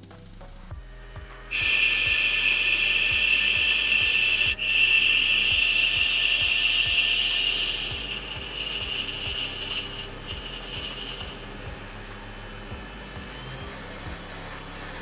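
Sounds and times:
lathe running: 0.8s - 15.0s
drill feeding into brass: 1.5s - 11.6s
lathe tool scraping brass: 1.5s - 13.2s.

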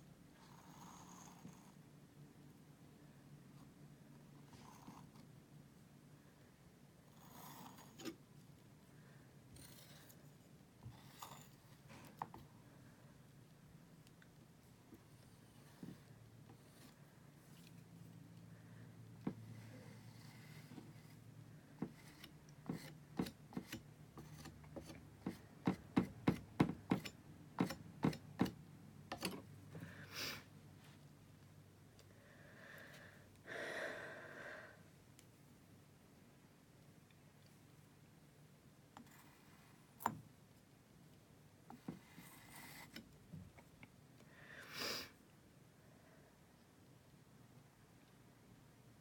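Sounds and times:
palette knife scraping canvas: 21.9s - 25.4s.

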